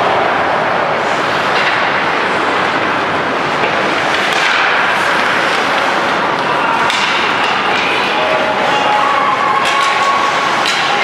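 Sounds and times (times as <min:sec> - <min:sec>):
hockey sticks clacking: 0:01.1 - 0:11.0
skate blades scraping ice: 0:03.4 - 0:11.0.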